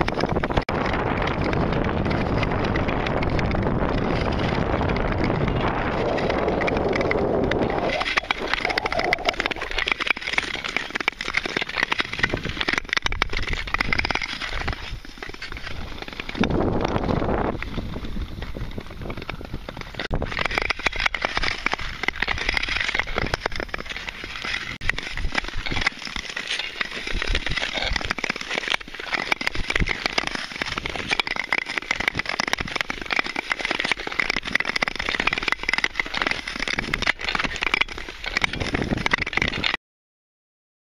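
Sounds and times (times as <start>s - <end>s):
wind rumbling on microphone: 0.0s - 10.9s, 11.6s - 26.2s, 29.4s - 39.8s
ice clicking and cracking: 0.0s - 39.8s
skates scraping on ice: 0.0s - 39.8s.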